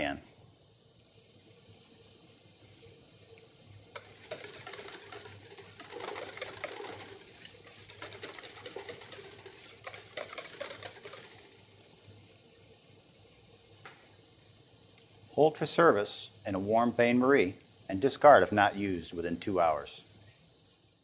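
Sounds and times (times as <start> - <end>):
wire whisk scraping metal bowl: 4.0 - 11.5.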